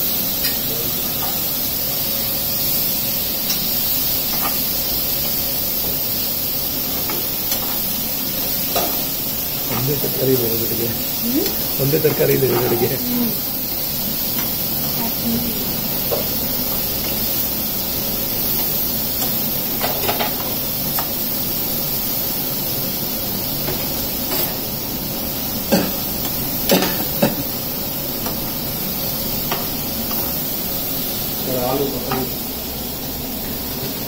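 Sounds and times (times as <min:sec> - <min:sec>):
frying hiss: 0:00.0 - 0:34.0
spatulas stirring in metal pans: 0:10.8 - 0:13.0.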